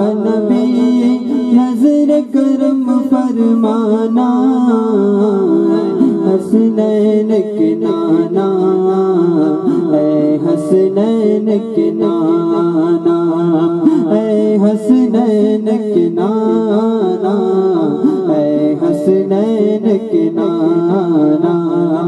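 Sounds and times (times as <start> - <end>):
man singing unaccompanied: 0.0 - 22.0.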